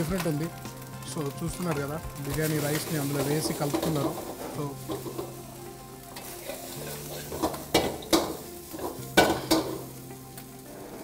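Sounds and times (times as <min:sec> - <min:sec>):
metal ladle scraping pan: 0:03.0 - 0:05.4, 0:06.2 - 0:09.8
ladle clanking against pan: 0:07.3 - 0:09.8.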